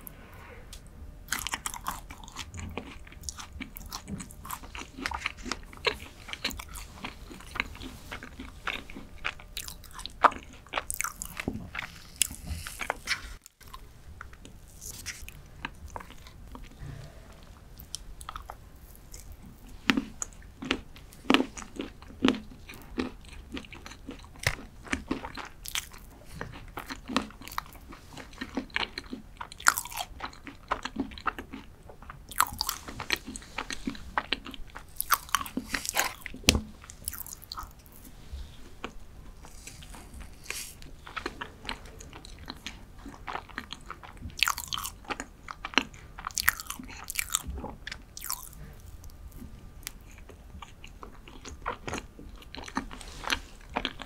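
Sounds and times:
chewing with wet mouth clicks: 1.3s - 16.8s, 17.8s - 37.9s, 38.8s - 54.0s.

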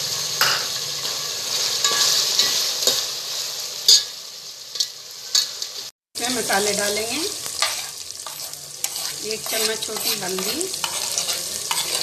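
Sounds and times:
meat sizzling in hot oil: 0.0s - 12.0s
spoon scraping metal pot: 7.6s - 12.0s.

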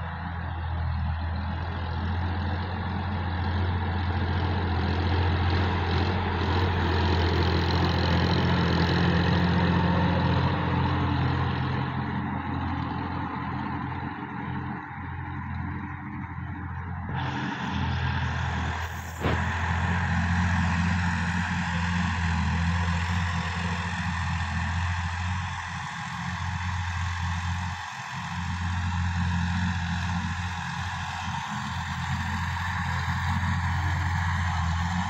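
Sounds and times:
tractor diesel engine running: 0.0s - 35.0s
rotary tiller churning soil: 17.1s - 35.0s.

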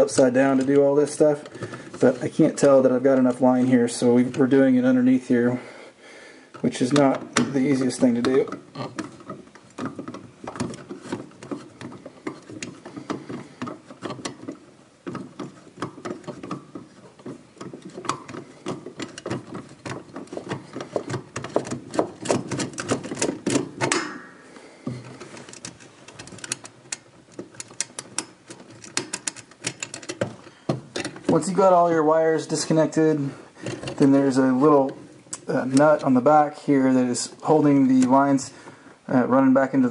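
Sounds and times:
plastic wire nuts clicking: 25.4s - 31.2s.

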